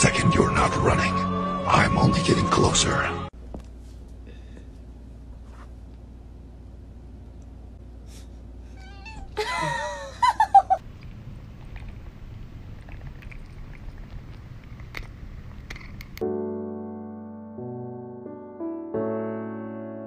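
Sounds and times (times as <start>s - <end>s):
cat meowing: 8.7s - 9.4s.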